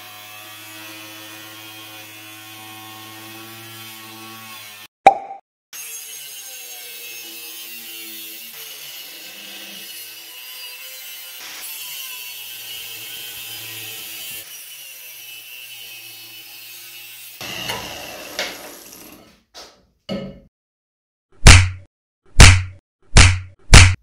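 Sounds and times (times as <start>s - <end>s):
angle grinder cutting steel: 0.0s - 4.9s, 5.8s - 19.3s
sharp knocks: 21.4s - 24.0s.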